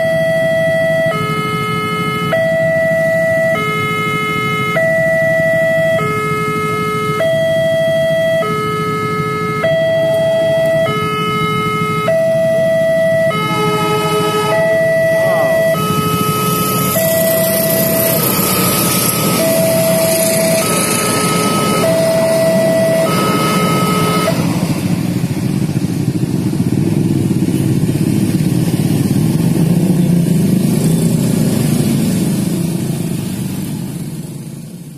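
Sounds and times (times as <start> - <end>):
level crossing two-tone alarm: 0.0 - 24.6
motorcycles idling and revving: 0.0 - 34.9.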